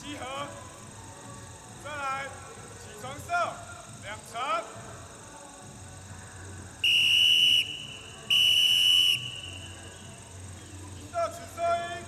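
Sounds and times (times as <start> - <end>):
whistle blasts: 6.8 - 10.1.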